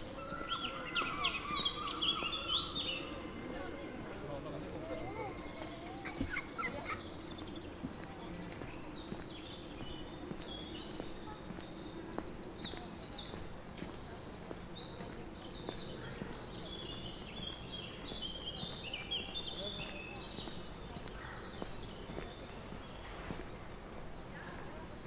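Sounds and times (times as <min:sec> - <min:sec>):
songbirds singing: 0:00.0 - 0:25.0.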